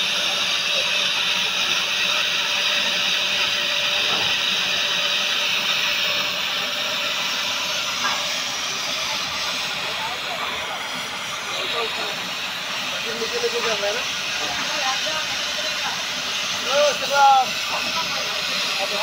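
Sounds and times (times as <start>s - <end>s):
cutting torch hissing: 0.0s - 19.0s.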